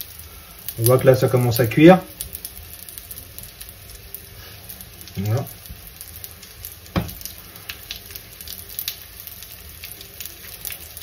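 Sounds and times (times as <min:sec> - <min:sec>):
batter sizzling in oil: 0:00.0 - 0:11.0
dull knock: 0:06.9 - 0:07.2.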